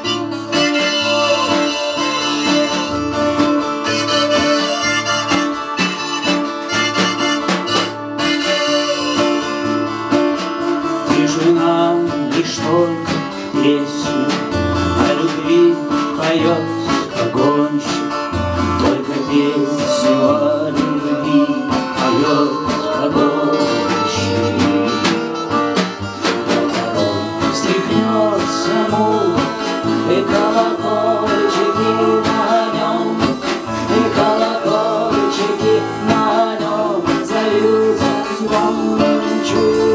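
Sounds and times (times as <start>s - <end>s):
harmonica playing: 0.0s - 11.1s, 19.2s - 39.9s
acoustic guitar strumming: 0.0s - 39.9s
woman singing: 18.8s - 25.3s, 26.2s - 39.9s.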